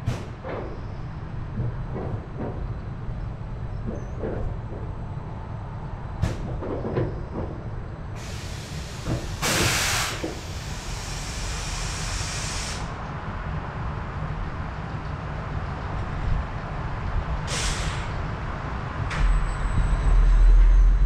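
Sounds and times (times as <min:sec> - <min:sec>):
compressed air hissing: 0:08.2 - 0:13.0, 0:17.5 - 0:18.1.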